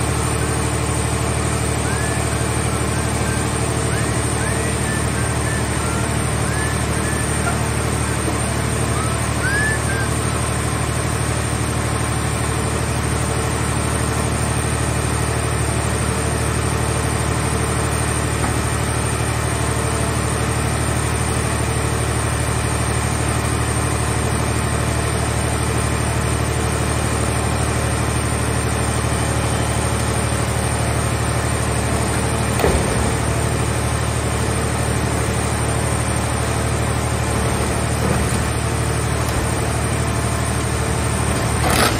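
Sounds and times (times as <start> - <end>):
hydraulic power unit drone: 0.0 - 41.9.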